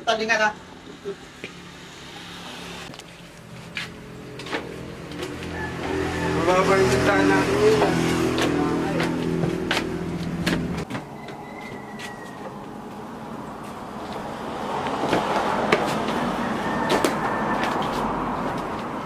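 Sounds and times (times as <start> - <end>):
footsteps on wooden floorboards: 7.7 - 12.7.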